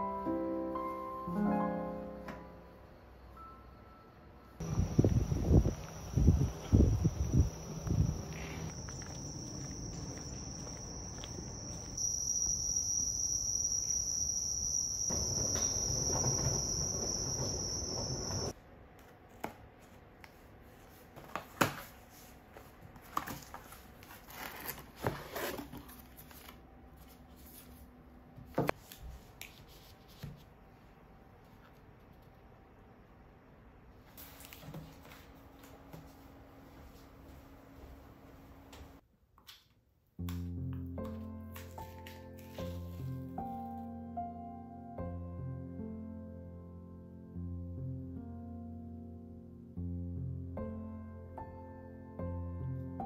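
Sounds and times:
crickets chirping: 0:02.8 - 0:18.6
paper packaging rustling: 0:20.8 - 0:27.9.

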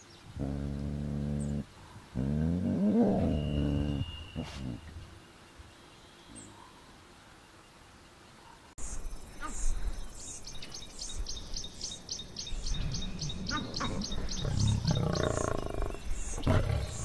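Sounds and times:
lion growling: 0:00.3 - 0:05.0, 0:13.8 - 0:17.0
faint bird chirps: 0:02.9 - 0:17.0.

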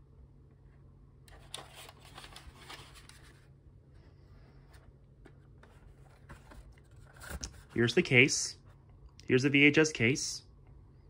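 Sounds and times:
plastic cassette handling rustling: 0:01.3 - 0:03.5.

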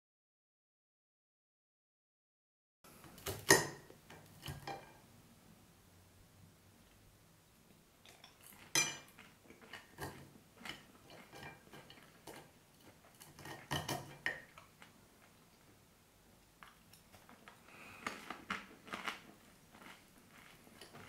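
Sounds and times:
metal fork clinking on plate: 0:08.2 - 0:09.1.

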